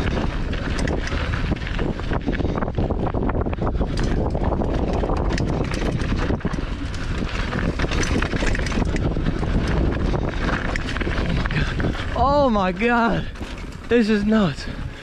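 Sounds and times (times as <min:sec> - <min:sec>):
bike rattling over stones: 0:00.0 - 0:15.0
wind rushing over microphone: 0:00.0 - 0:15.0
tyres crunching on gravel: 0:04.0 - 0:15.0.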